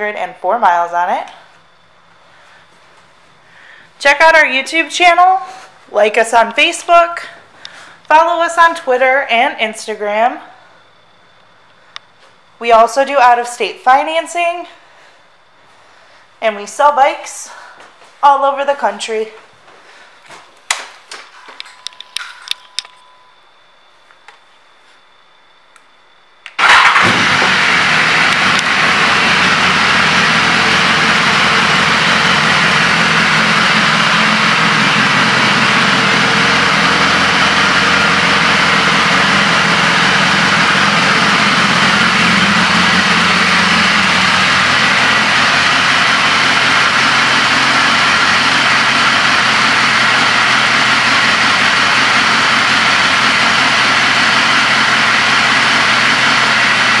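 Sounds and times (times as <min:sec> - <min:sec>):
motorcycle engine idling: 0:26.6 - 0:57.0.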